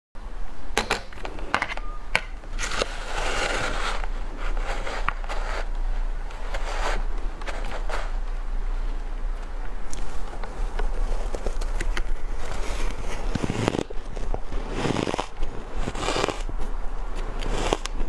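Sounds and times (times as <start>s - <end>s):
spoon scraping shaved ice: 2.6s - 5.7s, 12.9s - 14.0s, 14.6s - 16.5s, 17.4s - 18.0s.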